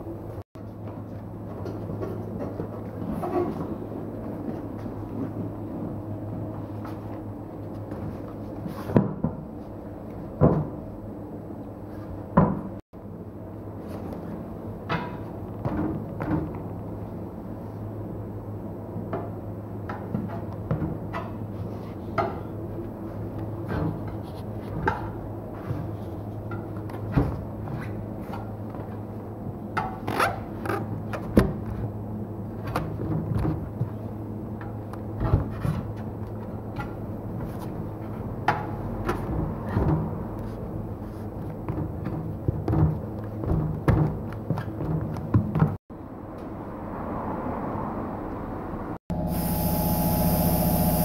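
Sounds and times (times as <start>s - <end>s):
low hum: 49.1s - 51.0s.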